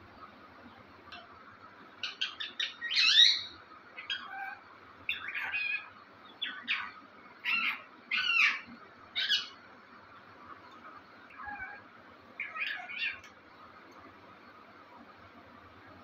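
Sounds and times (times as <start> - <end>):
parakeet calling: 2.0 - 9.7, 10.6 - 13.3.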